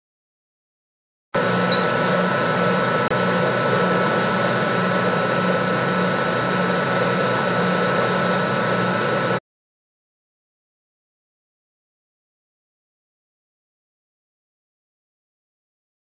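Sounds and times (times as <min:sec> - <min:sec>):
electric motor hum and whine: 0:01.4 - 0:09.4.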